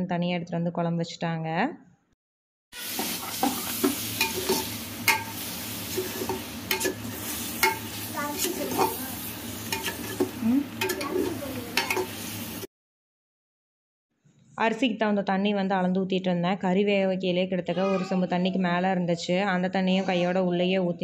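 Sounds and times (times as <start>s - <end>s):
masala sizzling: 2.8s - 12.7s
skimmer scraping and clinking a pot: 2.9s - 12.2s.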